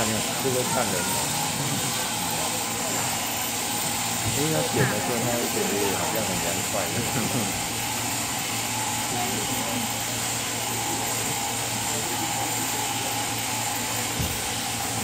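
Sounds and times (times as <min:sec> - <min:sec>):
sheep shearing handpiece humming: 0:00.0 - 0:15.0.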